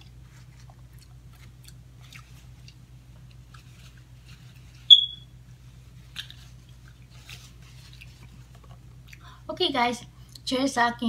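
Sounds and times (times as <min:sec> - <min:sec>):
faint chewing clicks: 0:00.0 - 0:04.1, 0:06.1 - 0:09.4, 0:10.2 - 0:10.5
high whistling squeak: 0:04.9 - 0:05.3.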